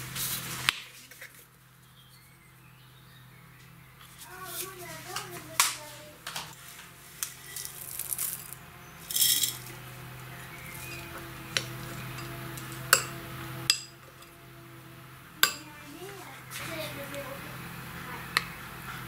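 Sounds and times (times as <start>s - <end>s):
chocolate chips rattling: 7.2s - 9.7s.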